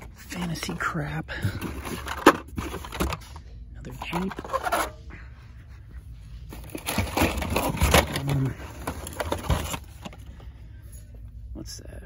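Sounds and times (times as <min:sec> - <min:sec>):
plastic blister packs rustling: 0:01.4 - 0:05.0, 0:06.4 - 0:10.4.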